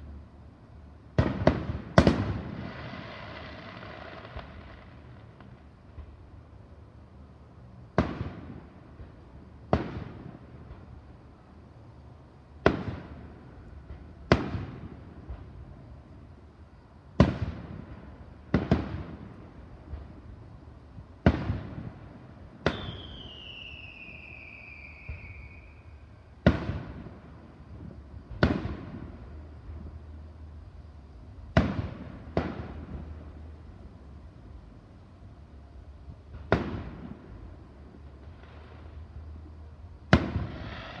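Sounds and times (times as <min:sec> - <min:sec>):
firework bangs with echo: 0:01.2 - 0:04.9, 0:14.3 - 0:15.0, 0:22.6 - 0:24.1, 0:26.4 - 0:27.2, 0:28.3 - 0:29.1, 0:31.5 - 0:33.2, 0:40.1 - 0:41.0
descending firework whistle: 0:22.6 - 0:27.2, 0:40.1 - 0:41.0.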